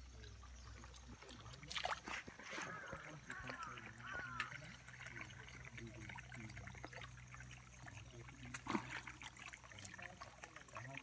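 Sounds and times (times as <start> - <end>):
water trickling into puddle: 0.0 - 11.0.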